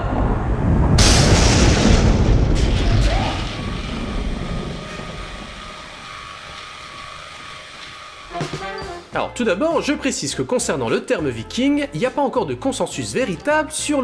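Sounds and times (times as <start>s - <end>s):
lightning crack: 0.0s - 8.4s
thunder rumbling: 0.0s - 8.6s.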